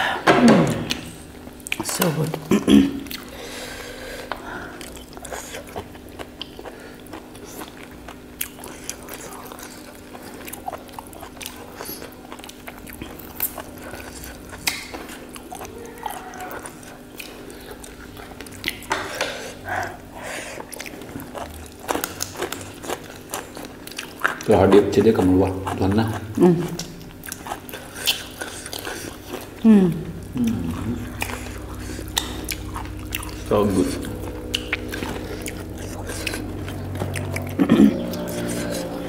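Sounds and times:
steady low hum: 0.0 - 39.0
people chewing and biting: 0.6 - 39.0
mouth clicks and smacks: 14.6 - 15.1.

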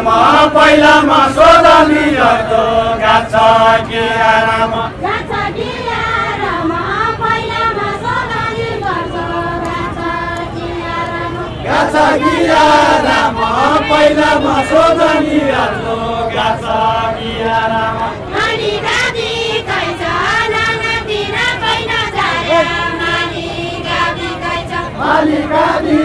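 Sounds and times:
group singing folk song: 0.0 - 26.0.

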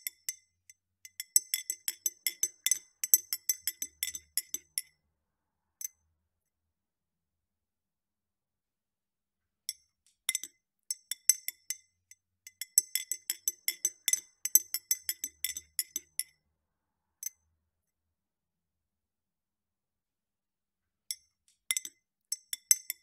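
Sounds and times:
spoon clinking against a glass: 1.0 - 4.9, 12.5 - 16.3.

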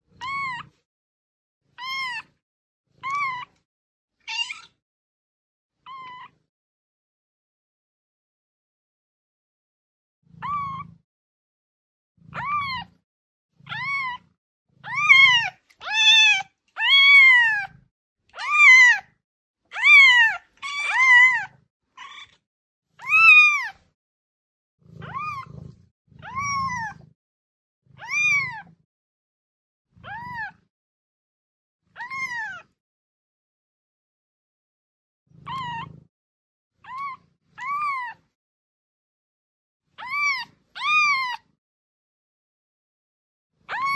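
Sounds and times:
kitten meowing: 0.2 - 0.7, 1.8 - 2.3, 3.0 - 3.6, 4.2 - 4.8, 5.9 - 6.4, 10.4 - 11.0, 12.3 - 13.0, 13.7 - 17.8, 18.4 - 19.1, 19.7 - 22.4, 23.0 - 23.8, 25.0 - 25.6, 26.2 - 27.0, 28.0 - 28.7, 32.0 - 32.7, 35.4 - 36.0, 36.8 - 38.2, 40.0 - 41.5, 43.7 - 43.9.

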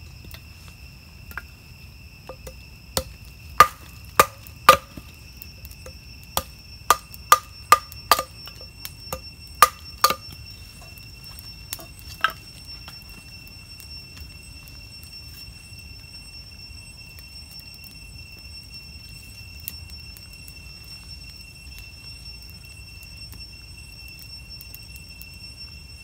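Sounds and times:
insects chirring: 0.0 - 26.0
hand tool knocking on wood: 2.3 - 2.6, 3.6 - 5.0, 6.9 - 8.3.

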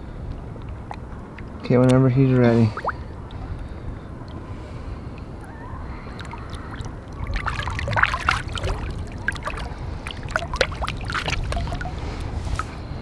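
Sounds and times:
low steady rumble: 0.0 - 13.0
water splashing and churning: 0.1 - 13.0
water dripping: 5.1 - 12.8.

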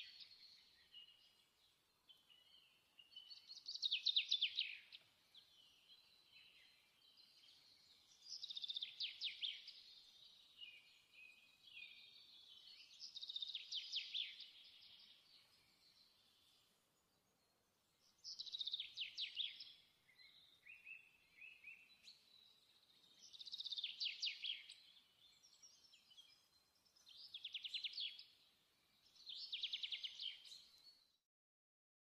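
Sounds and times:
soft bird chirps: 0.0 - 31.2.

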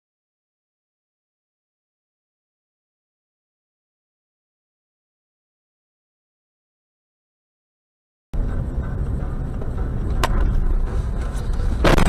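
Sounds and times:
car engine and road rumble: 8.4 - 12.0.

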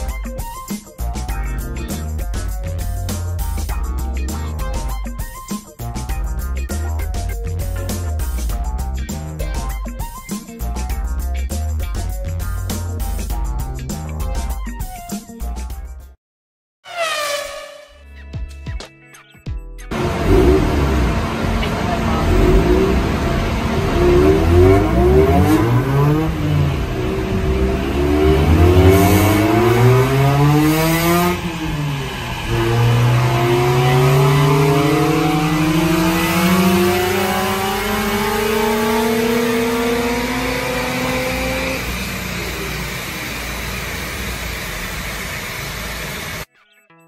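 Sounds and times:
rotary engine revving: 19.9 - 46.5.

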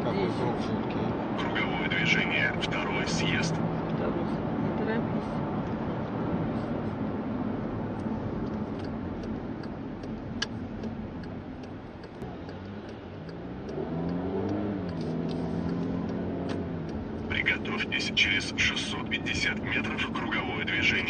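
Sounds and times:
car engine accelerating: 0.0 - 21.0
tyre and road noise: 0.0 - 21.0
turn indicator ticking: 7.7 - 21.0.

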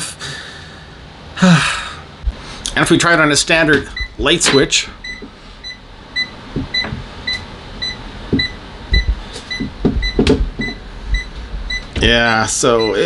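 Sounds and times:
soft knocks: 6.5 - 7.1, 8.3 - 10.8.

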